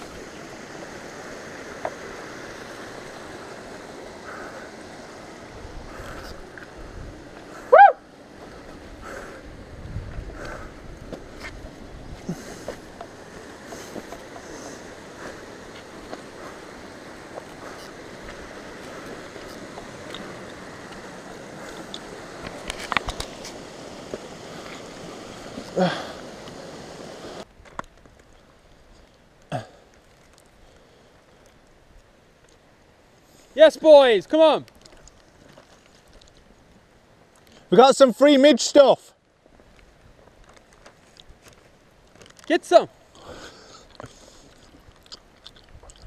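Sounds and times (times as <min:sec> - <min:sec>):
rushing outdoor background noise: 0:00.0 - 0:46.0
bike clicking and knocking on rocks: 0:21.7 - 0:23.6.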